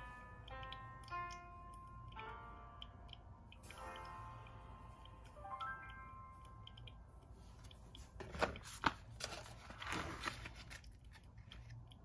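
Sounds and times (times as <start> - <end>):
paper bag rustling and crinkling: 8.2 - 11.0.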